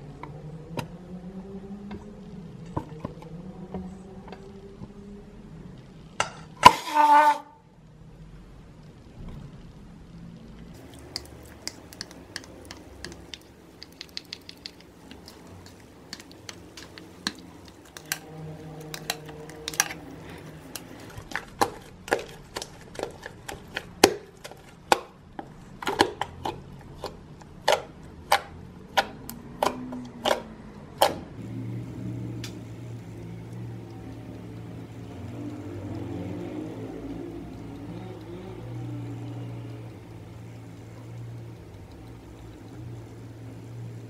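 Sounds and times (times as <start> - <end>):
slime clicking and popping: 10.8 - 15.5.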